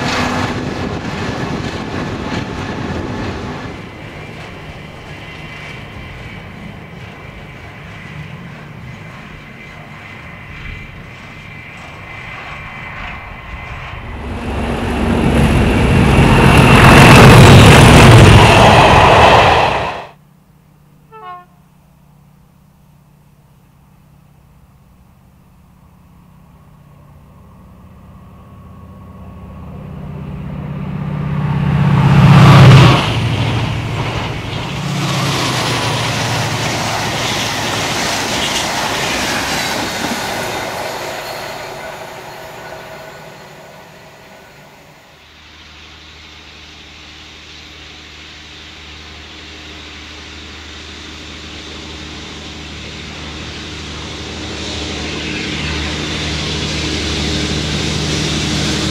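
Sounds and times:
diesel engine approaching: 0:00.0 - 0:20.2, 0:24.1 - 0:58.9
diesel locomotive passing: 0:00.0 - 0:58.9
carriages rushing past: 0:30.6 - 0:45.1.

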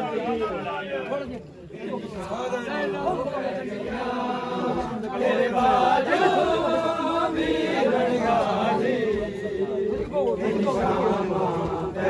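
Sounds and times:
crowd of men chanting: 0:00.0 - 0:12.0.

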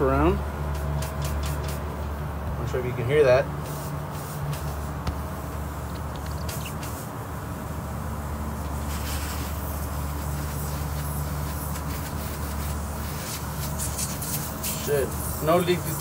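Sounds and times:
low machinery hum: 0:00.0 - 0:16.0
gas hissing from leak: 0:03.6 - 0:07.1, 0:08.5 - 0:16.0.

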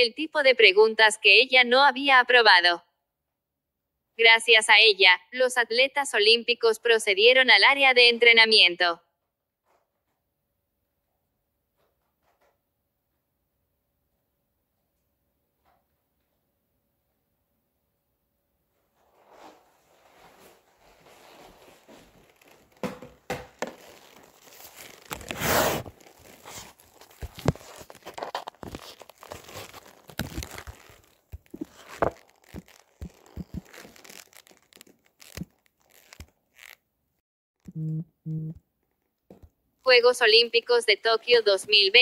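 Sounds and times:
rustling and crinkling: 0:18.7 - 0:36.8
short low beeps: 0:37.7 - 0:38.6.

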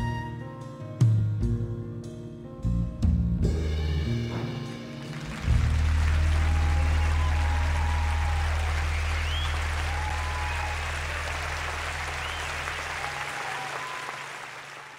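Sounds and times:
low hum: 0:03.4 - 0:13.6
audience applauding: 0:04.4 - 0:14.9
people cheering: 0:04.4 - 0:14.9.

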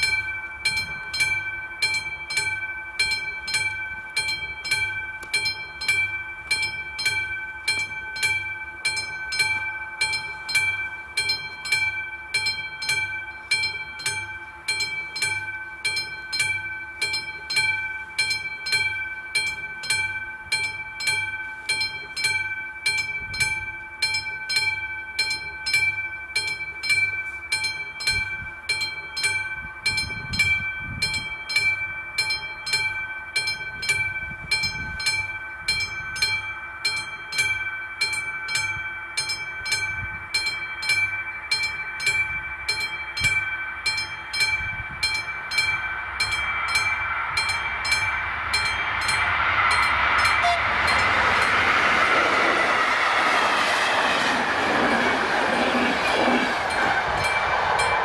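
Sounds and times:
level crossing warning bell: 0:00.0 - 0:53.1, 0:54.4 - 0:58.0
train rumble: 0:29.2 - 0:58.0.

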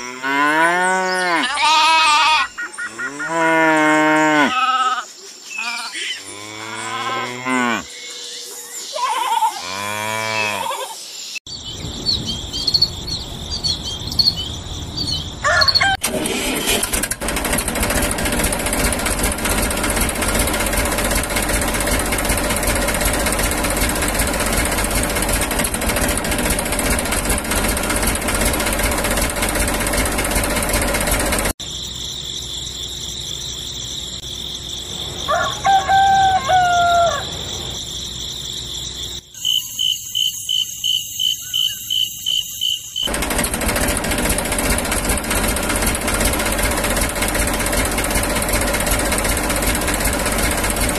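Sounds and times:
rooster crowing: 0:15.4 - 0:16.0, 0:35.2 - 0:37.6
tractor engine running: 0:16.0 - 0:31.6, 0:43.0 - 0:50.9.

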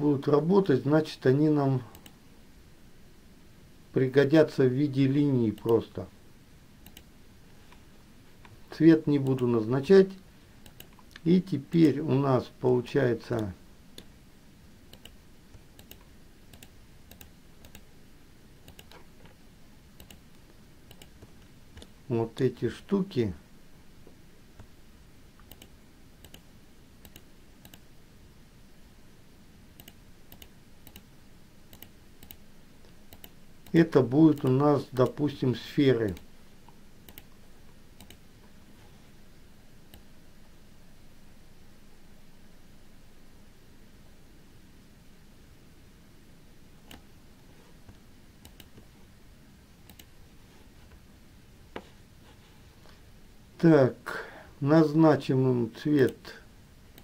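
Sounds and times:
low steady hiss: 0:00.0 - 0:57.0
computer mouse clicks: 0:01.9 - 0:02.2, 0:06.8 - 0:07.1, 0:10.6 - 0:11.3, 0:14.9 - 0:17.9, 0:18.6 - 0:19.4, 0:20.0 - 0:22.0, 0:25.4 - 0:27.8, 0:29.8 - 0:31.1, 0:31.7 - 0:35.2, 0:36.1 - 0:37.4, 0:38.0 - 0:38.2, 0:47.8 - 0:48.9, 0:49.8 - 0:50.1.

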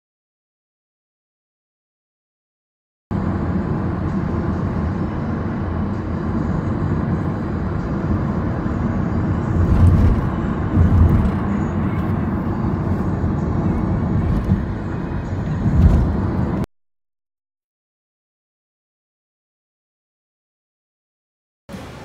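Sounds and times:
road and engine noise: 0:03.1 - 0:16.7, 0:21.7 - 0:22.0.

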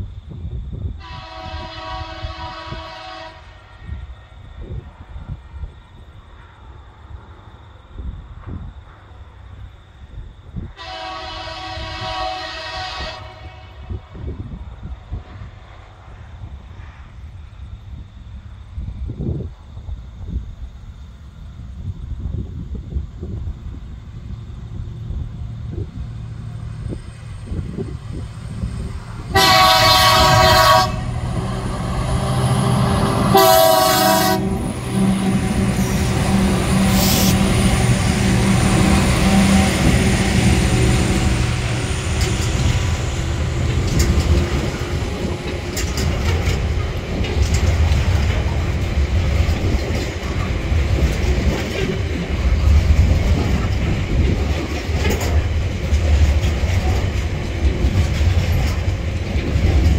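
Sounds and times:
diesel locomotives droning: 0:00.0 - 0:59.9
diesel locomotive horn: 0:01.0 - 0:04.1, 0:10.8 - 0:14.2, 0:28.6 - 0:47.2
train wagons clickety-clack: 0:21.2 - 0:59.9.

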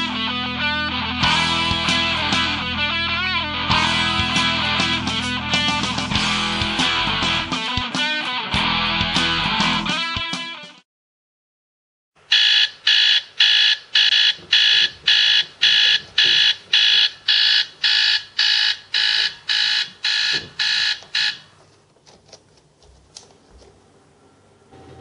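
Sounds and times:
alarm clock beeping: 0:12.3 - 0:21.4.

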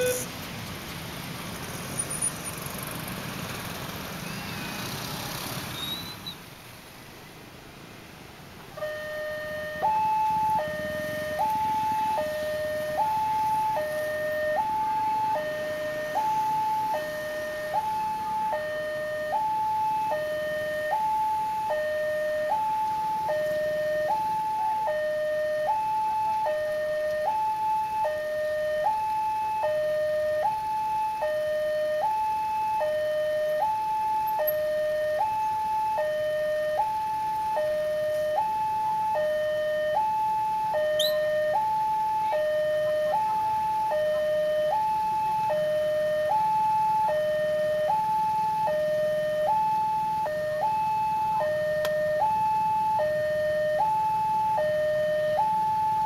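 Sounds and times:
level crossing alarm: 0:00.0 - 0:00.3, 0:08.8 - 0:56.0
motorcycle traffic noise: 0:00.0 - 0:56.0.

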